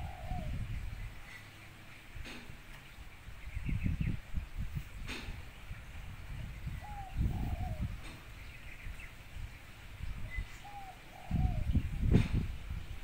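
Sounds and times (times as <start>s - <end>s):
dove cooing: 0.0s - 0.9s, 6.8s - 8.3s, 10.2s - 12.4s.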